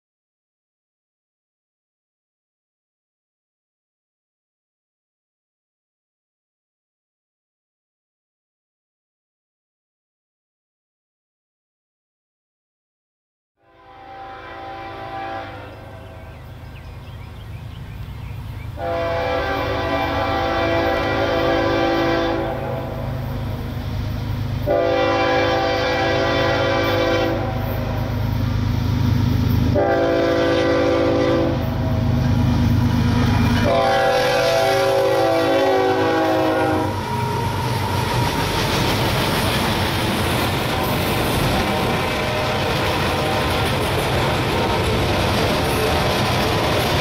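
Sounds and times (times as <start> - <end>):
locomotive air horn: 13.6 - 16.4, 18.8 - 23.2, 24.6 - 28.2, 29.7 - 32.1, 33.6 - 38.4, 40.6 - 43.8, 45.1 - 47.0
train wheels rumbling on rails: 14.8 - 47.0
diesel engines droning: 25.6 - 47.0.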